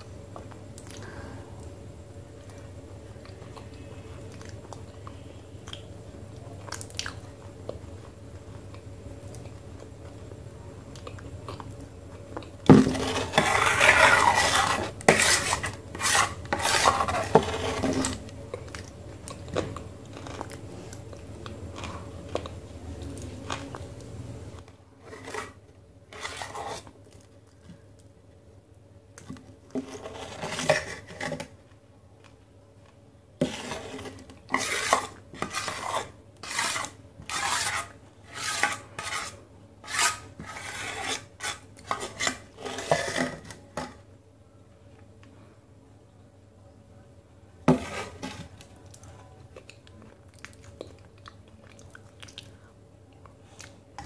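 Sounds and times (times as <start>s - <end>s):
spoon scraping clay paste: 12.7s - 21.0s, 25.0s - 27.0s, 29.7s - 31.6s, 33.4s - 43.9s, 47.7s - 48.7s.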